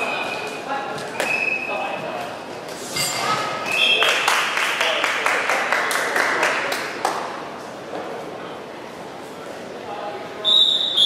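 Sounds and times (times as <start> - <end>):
spectators clapping and cheering: 4.0 - 7.4.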